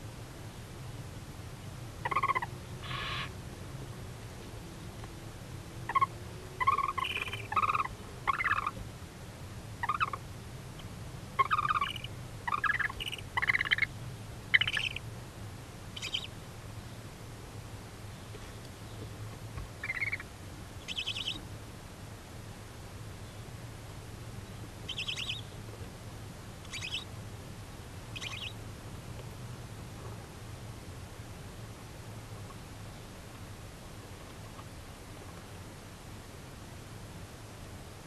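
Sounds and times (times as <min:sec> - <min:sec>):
barn owls twittering calls: 0:02.0 - 0:03.4, 0:05.9 - 0:08.8, 0:09.8 - 0:10.2, 0:10.8 - 0:15.0, 0:16.0 - 0:16.4, 0:19.8 - 0:21.4, 0:24.9 - 0:25.6, 0:26.7 - 0:27.1, 0:28.1 - 0:28.6.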